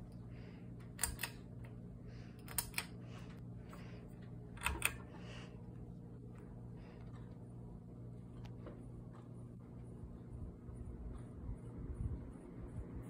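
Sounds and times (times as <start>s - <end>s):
steady low hum: 0.0s - 13.0s
pull-chain switch clicking: 1.0s - 1.4s.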